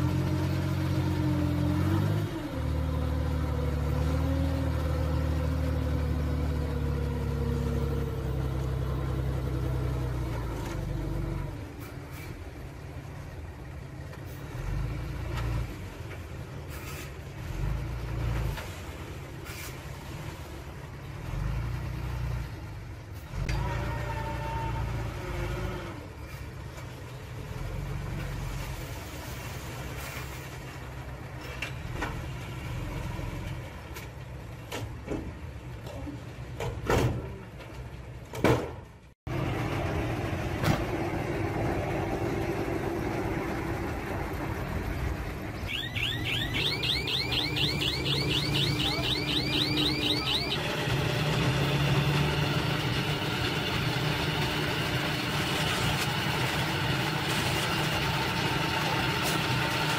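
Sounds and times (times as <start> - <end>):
diesel truck engine revving: 0.0 - 16.0, 39.3 - 59.9
soil unloading: 50.8 - 59.9.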